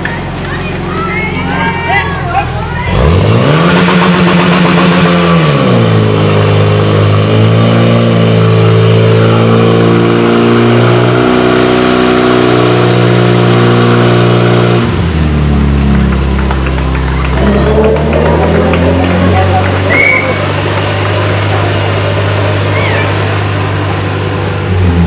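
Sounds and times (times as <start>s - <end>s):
fire pump engine running hard: 0.0s - 25.0s.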